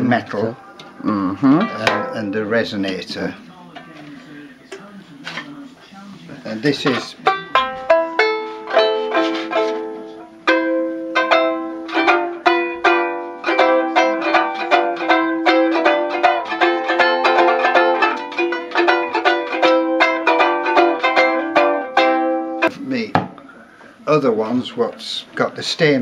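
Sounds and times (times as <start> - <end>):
banjo ukulele playing: 0.0 - 3.3, 6.5 - 22.8.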